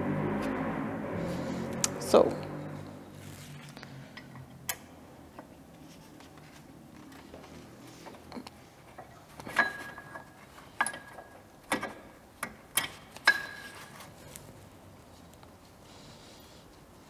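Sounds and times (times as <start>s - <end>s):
sharp metallic clicks and knocks: 8.3s - 13.7s.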